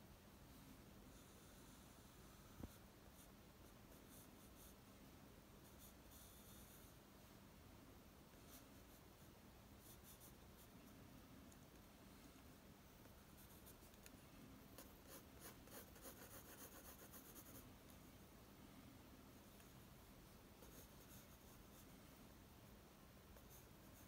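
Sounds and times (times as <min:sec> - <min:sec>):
pencil scratching on paper: 0:01.1 - 0:04.8, 0:05.6 - 0:07.0, 0:14.8 - 0:17.6, 0:20.6 - 0:21.9.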